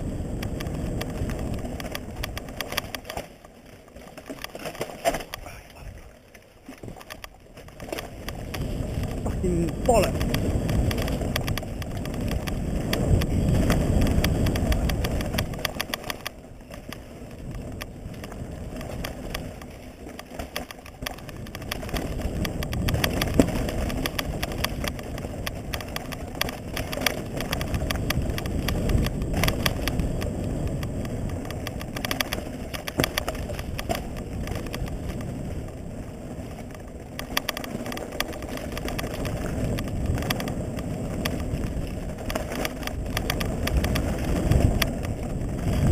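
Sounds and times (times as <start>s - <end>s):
bike clicking and rattling: 0.0s - 45.9s
bike tyre noise on trail: 0.0s - 45.9s
wind rush: 8.2s - 16.3s, 21.2s - 45.9s.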